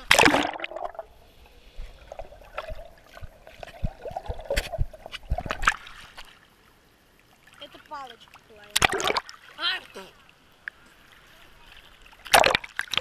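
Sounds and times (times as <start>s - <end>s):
underwater gurgling and bubbling: 0.0s - 5.8s.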